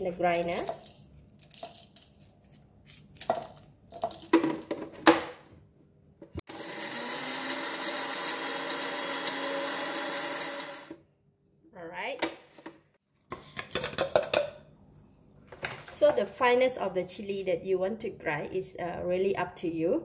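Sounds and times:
blender grinding chillies: 6.5 - 11.0.

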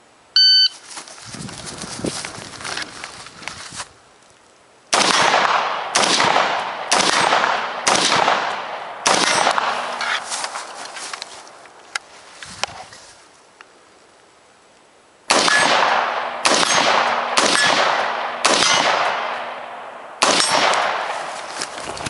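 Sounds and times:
rifle shots with echo: 4.9 - 10.0, 15.3 - 21.4.

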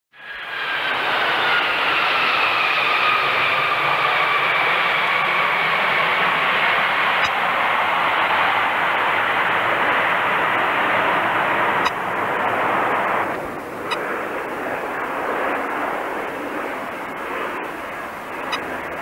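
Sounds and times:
jet airliner engines roaring: 0.1 - 19.0.

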